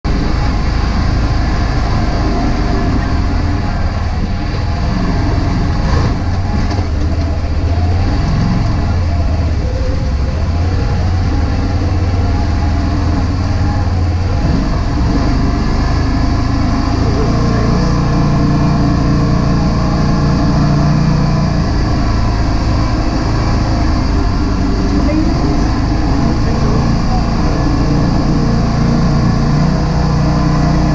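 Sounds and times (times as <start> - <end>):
vehicle engine running: 0.0 - 30.9.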